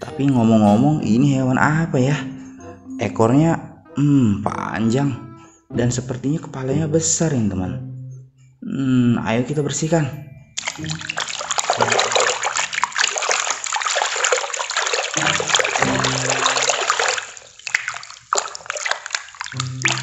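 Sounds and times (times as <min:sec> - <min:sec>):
water splashing in plastic tub: 0:10.6 - 0:20.0.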